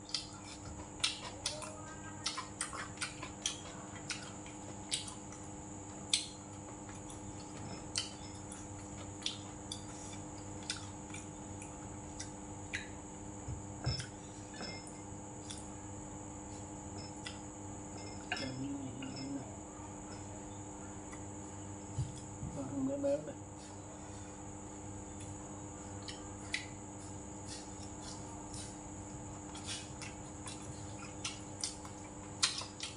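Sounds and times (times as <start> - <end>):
chewing with mouth clicks: 0.0 - 13.0, 15.4 - 15.7, 25.1 - 28.8, 29.4 - 32.9
faint electrical hum: 0.0 - 32.9
chopsticks and spoon tapping bowls: 16.9 - 19.4.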